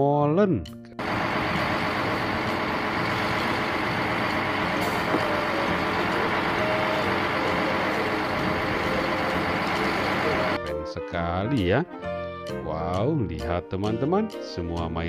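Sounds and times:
diesel truck engine running: 1.0s - 10.6s.

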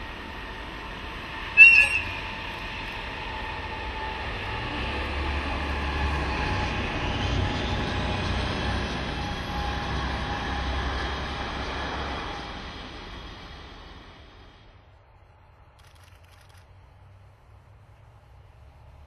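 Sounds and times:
locomotive engine rumble: 0.0s - 19.0s
high-pitched train whistle: 1.4s - 4.7s.

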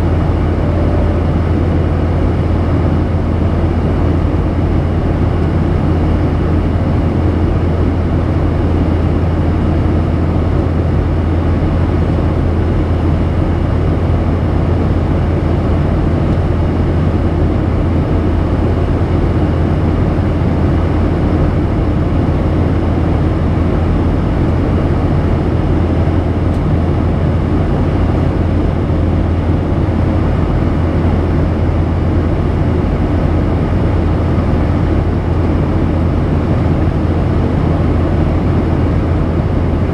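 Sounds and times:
jet engines droning: 0.0s - 39.9s.

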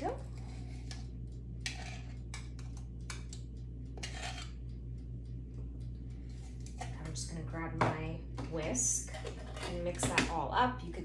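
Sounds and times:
spoon scraping: 1.6s - 2.8s, 4.0s - 4.6s.

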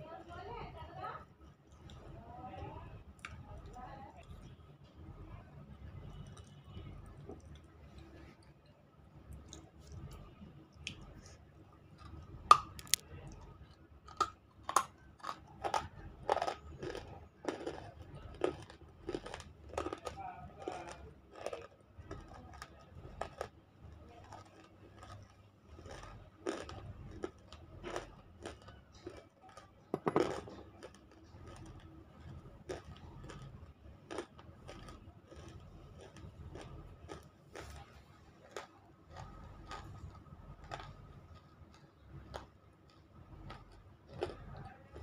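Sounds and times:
crunching and chewing: 1.4s - 2.2s, 3.1s - 5.2s, 5.8s - 45.0s.

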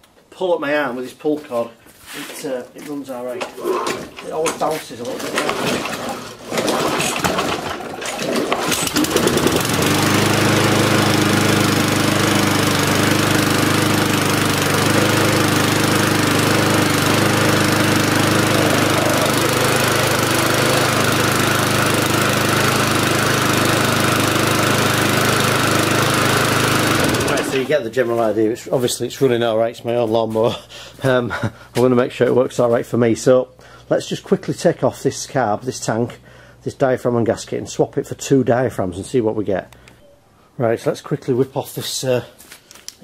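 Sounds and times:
lawnmower engine running: 5.2s - 27.8s.

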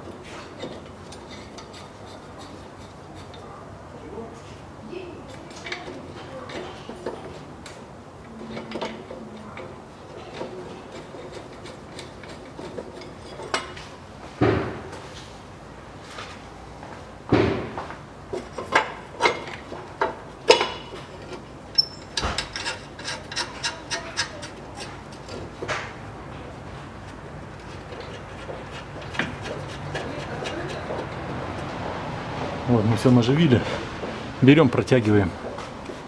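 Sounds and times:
metal clinks and scrapes: 0.2s - 3.5s, 10.1s - 14.0s, 18.3s - 25.6s.

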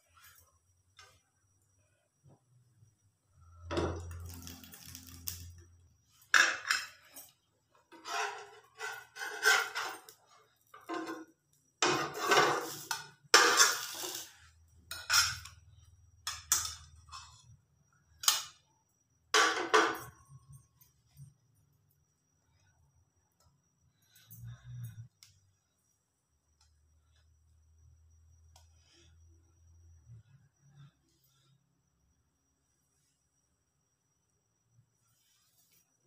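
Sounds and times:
spatula scraping in pan: 7.9s - 11.2s, 11.8s - 15.6s.

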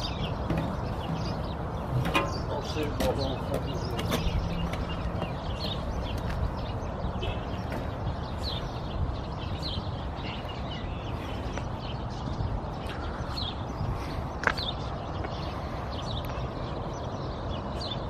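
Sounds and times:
bird chirps: 0.0s - 18.0s.

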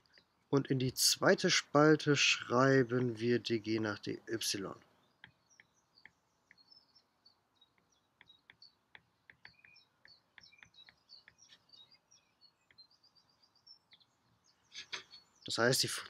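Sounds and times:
stylus tapping on tablet screen: 5.2s - 6.7s, 7.7s - 11.6s.

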